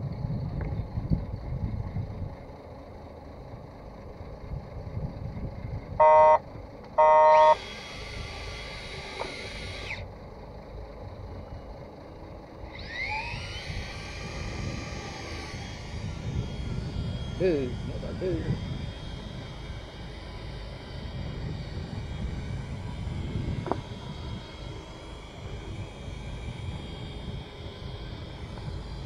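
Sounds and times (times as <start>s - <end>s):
steady low rumble: 0.0s - 29.0s
electronic beeps: 6.0s - 6.4s, 7.0s - 7.6s
fishing reel motor whining: 7.0s - 10.1s, 12.5s - 29.0s.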